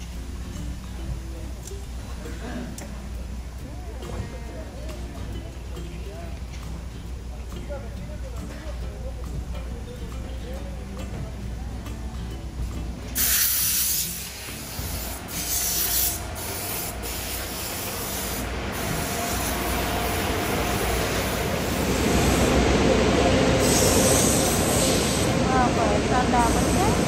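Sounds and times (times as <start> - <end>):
hose spraying bursts: 13.2 - 22.5
steady rumbling noise: 16.2 - 27.0.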